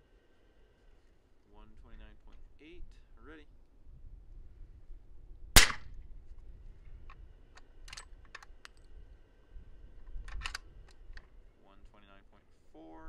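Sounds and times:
suppressed rifle shot: 0:05.5 - 0:06.0
rifle bolt clicking: 0:10.1 - 0:11.3.

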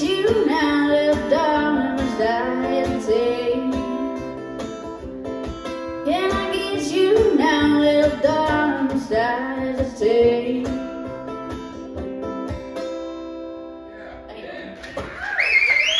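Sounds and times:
woman singing: 0:00.0 - 0:04.4, 0:06.0 - 0:11.2
strummed acoustic guitar: 0:00.0 - 0:15.3.

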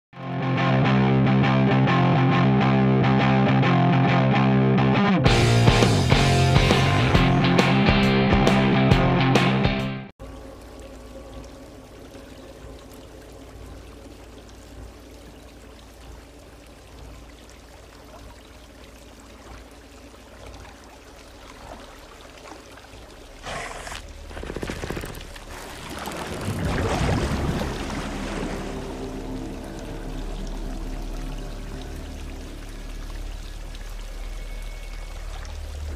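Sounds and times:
water pouring and splashing: 0:10.2 - 0:35.9
low steady hum: 0:25.2 - 0:35.9.

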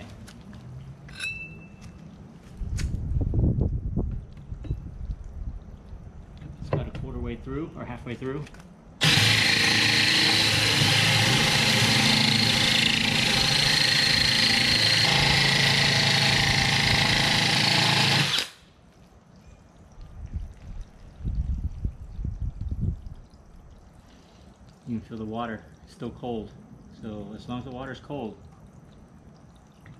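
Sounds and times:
drill grinding through glass: 0:09.0 - 0:18.6.

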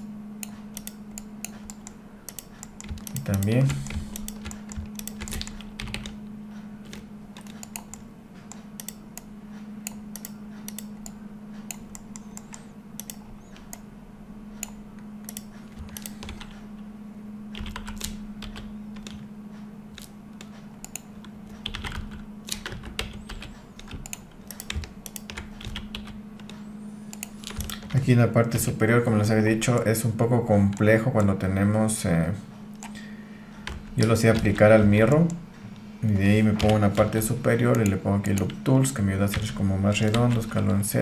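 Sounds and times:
steady low hum: 0:00.0 - 0:41.0
keyboard and mouse clicking: 0:00.4 - 0:06.2, 0:06.8 - 0:13.9, 0:14.6 - 0:16.6, 0:17.5 - 0:19.3, 0:19.9 - 0:28.0, 0:30.6 - 0:31.4, 0:33.6 - 0:35.4, 0:36.4 - 0:40.8.

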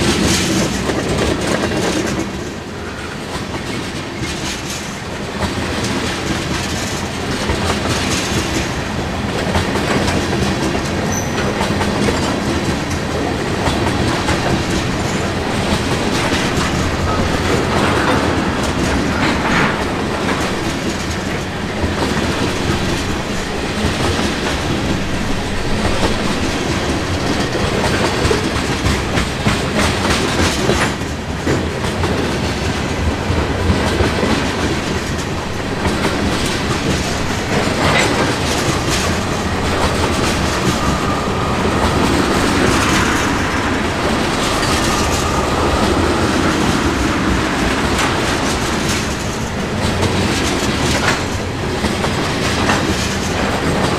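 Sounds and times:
freight train rumbling past: 0:00.0 - 0:53.9
wheels clacking over rail: 0:00.0 - 0:53.9
high ringing from wheels: 0:11.1 - 0:11.6.

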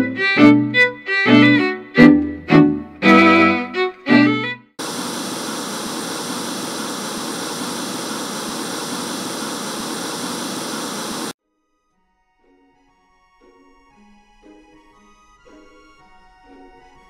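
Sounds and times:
television static hiss: 0:04.8 - 0:11.4.

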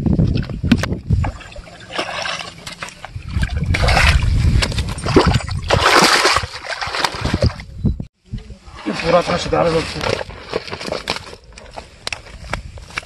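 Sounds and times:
fish thrashing and splashing: 0:01.2 - 0:07.6.

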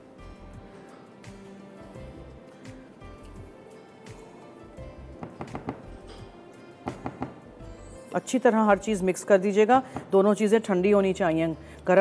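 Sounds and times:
quiet background music: 0:00.0 - 0:12.0.

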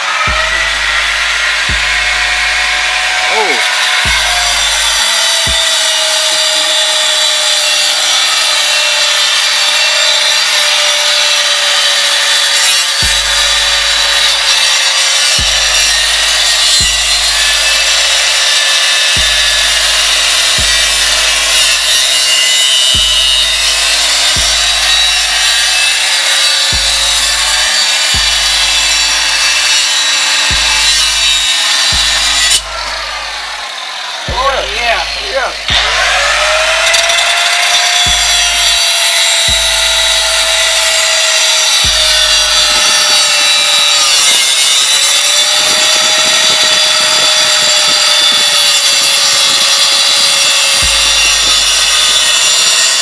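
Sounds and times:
background music with bass beat: 0:00.0 - 0:06.3, 0:13.0 - 0:14.6, 0:15.2 - 0:25.9, 0:26.7 - 0:43.2, 0:50.8 - 0:53.0
angle grinder grinding steel: 0:00.0 - 0:53.0.

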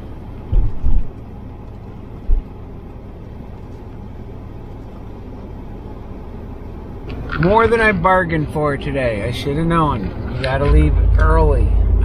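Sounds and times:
car engine and road rumble: 0:00.0 - 0:12.0
low thumps: 0:00.5 - 0:01.1, 0:09.9 - 0:12.0.

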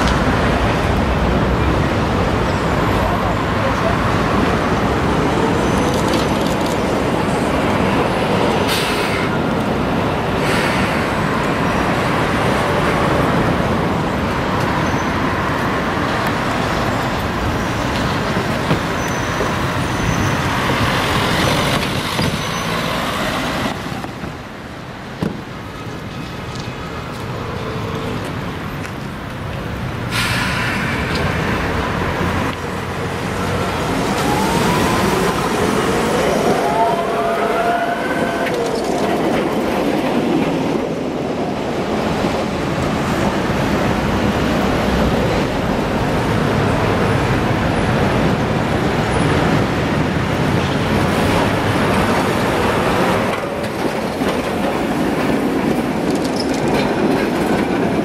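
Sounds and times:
city traffic noise: 0:00.0 - 0:58.0
tram running round a curve: 0:00.0 - 0:58.0
short hiss: 0:30.1 - 0:31.1.

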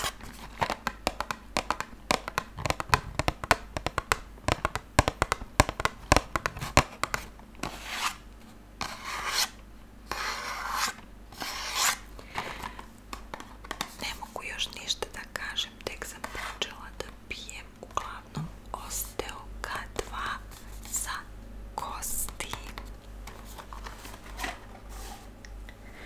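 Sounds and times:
fingernails tapping on cardboard: 0:00.8 - 0:07.2.

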